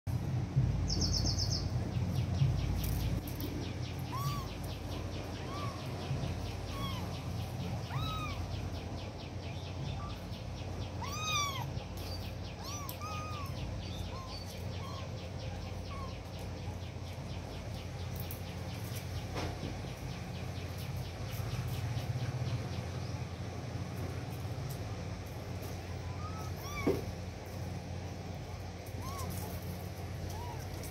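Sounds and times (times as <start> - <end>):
steady low hum: 0.1 - 30.9
kittens mewing: 4.0 - 8.7, 11.0 - 16.2, 26.0 - 27.2.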